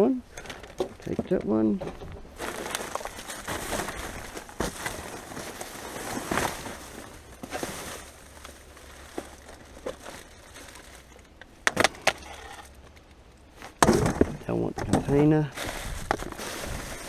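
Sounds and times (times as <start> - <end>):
packaging rustling and crinkling: 2.0 - 13.1, 15.5 - 17.0.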